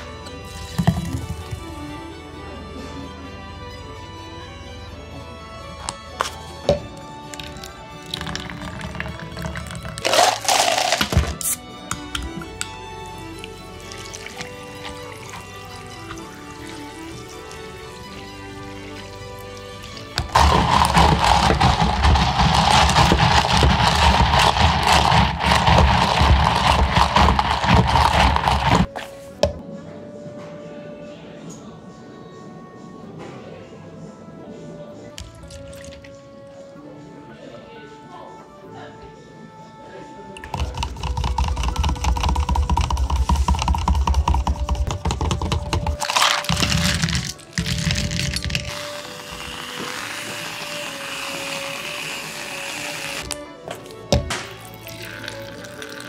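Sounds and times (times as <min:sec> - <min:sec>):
background music: 0:00.0 - 0:56.0
spoon clattering in plastic cup: 0:08.1 - 0:12.2, 0:20.2 - 0:28.9, 0:40.4 - 0:50.0.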